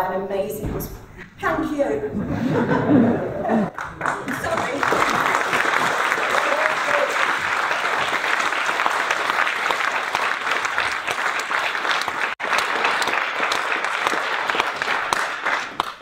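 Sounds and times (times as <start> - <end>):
audience applauding: 3.7 - 16.0.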